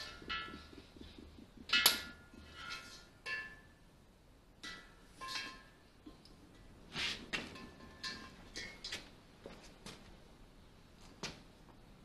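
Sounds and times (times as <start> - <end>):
metal hose fittings clinking: 0.0 - 3.7, 7.4 - 9.1.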